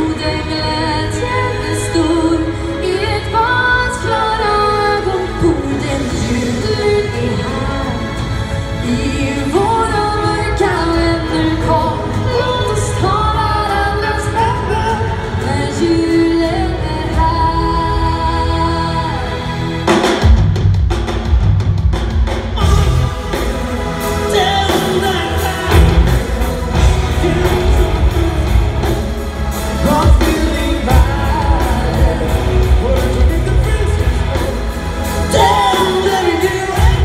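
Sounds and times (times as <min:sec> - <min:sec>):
live metal band with singing: 0:00.0 - 0:37.0
drum kit hitting: 0:19.9 - 0:37.0.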